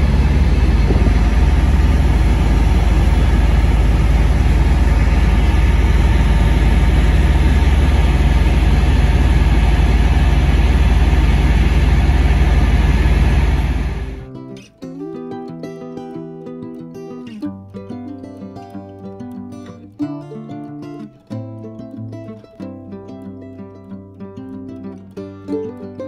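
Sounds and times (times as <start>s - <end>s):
boat engine droning: 0.0s - 14.3s.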